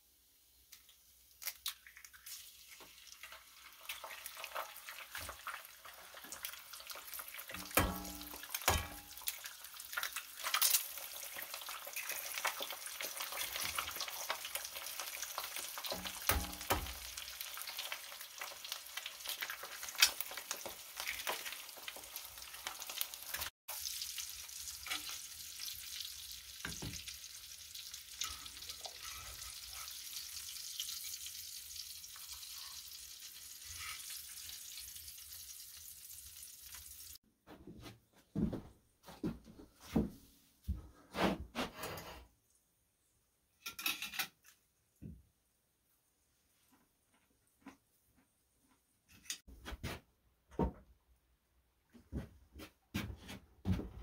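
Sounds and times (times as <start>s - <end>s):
bacon and eggs sizzling: 0.1s - 37.2s
utensils knocking on pan: 7.6s - 9.2s, 15.8s - 17.1s.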